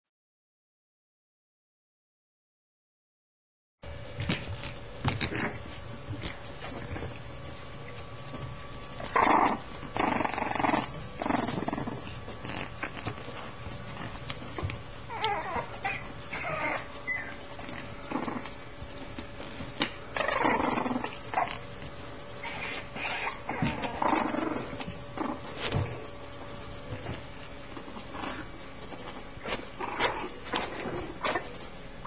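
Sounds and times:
puppies making rough vocal sounds: 5.1 - 32.0.

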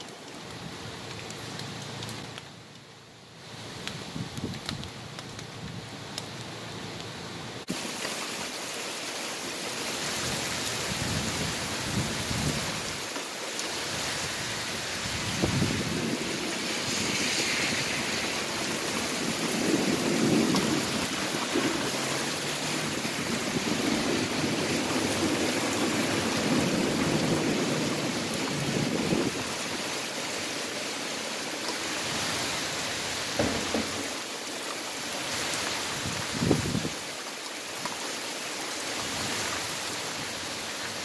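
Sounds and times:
heavy rain pouring: 0.0 - 41.0
thunder rumbling: 15.0 - 29.8.

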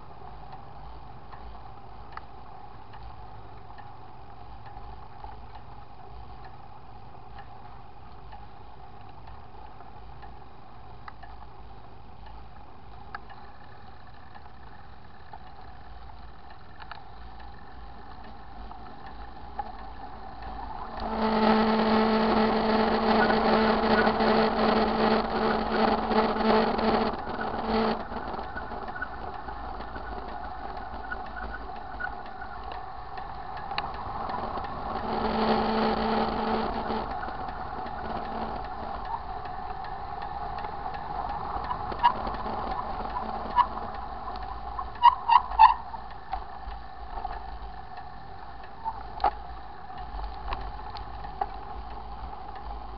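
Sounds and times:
bicycle riding noise: 0.0 - 52.9
sharp clicks: 12.3 - 52.8
bicycle freewheel ratcheting: 22.7 - 35.6, 36.4 - 52.9.

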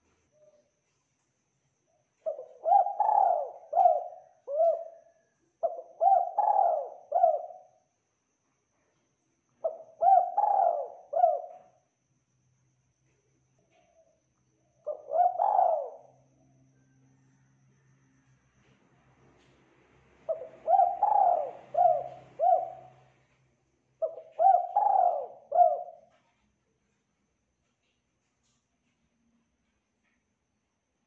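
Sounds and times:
dove cooing: 2.2 - 7.8, 9.6 - 11.8, 14.8 - 16.2, 20.3 - 23.2, 24.0 - 26.3.

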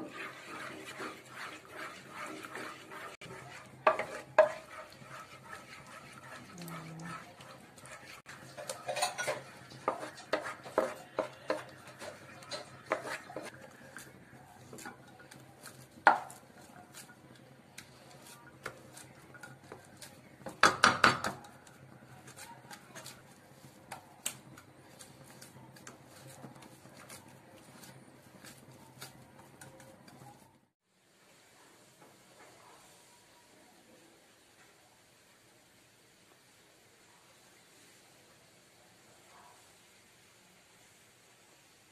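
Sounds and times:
wooden spatula scraping a pan: 0.0 - 30.7.

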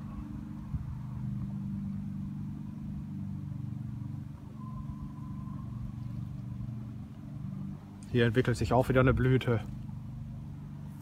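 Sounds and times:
low engine drone: 0.0 - 11.0
faint thin high tone: 4.5 - 6.6.

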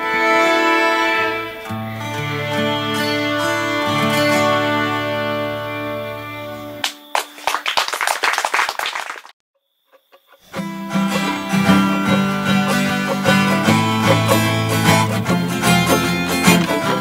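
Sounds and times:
strummed acoustic guitar tune: 0.0 - 6.8, 10.5 - 17.0
steady bass line: 10.6 - 17.0.

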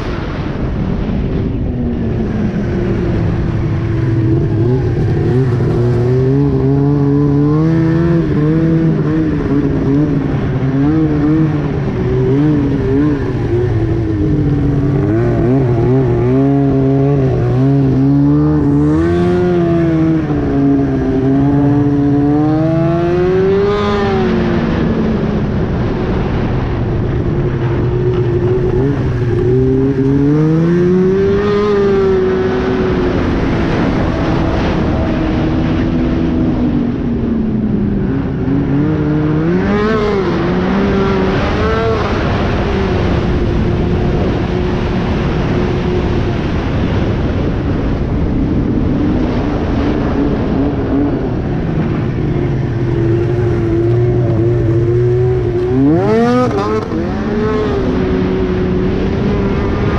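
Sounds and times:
snowmobile engine revving: 2.2 - 25.0, 27.4 - 35.8, 38.6 - 46.9, 49.6 - 59.9.

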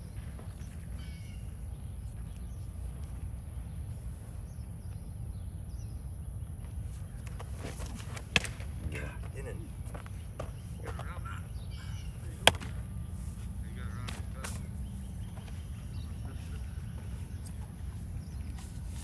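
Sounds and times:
baseball sharp crack: 7.2 - 9.0, 12.0 - 15.6.

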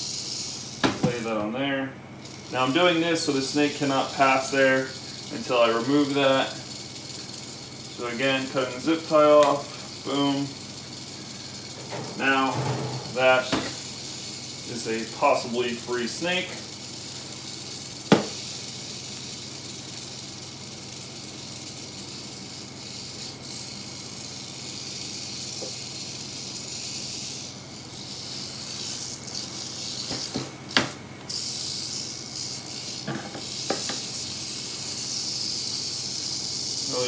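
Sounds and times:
rattlesnake rattling its tail: 0.0 - 1.4, 2.1 - 37.0.

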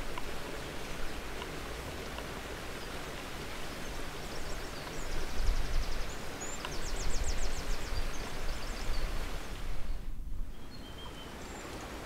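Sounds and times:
outdoor hiss: 0.0 - 12.0
songbird trills: 3.8 - 9.1, 10.5 - 11.7.

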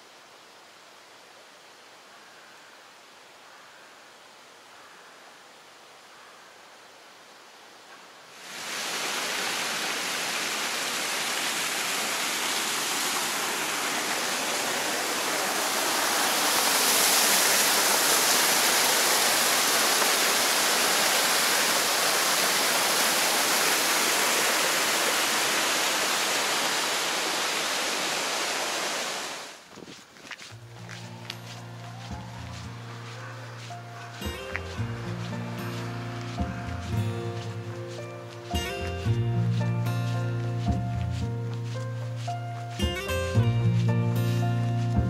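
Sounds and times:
water gushing into concrete channel: 8.4 - 29.5.

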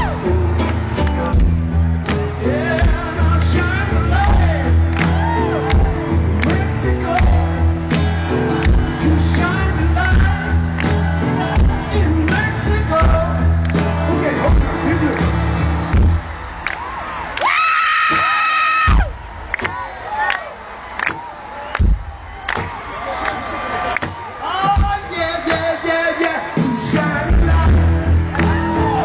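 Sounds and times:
live rock band playing: 0.0 - 16.8, 24.0 - 29.0
crowd shouting and whooping: 0.0 - 29.0.

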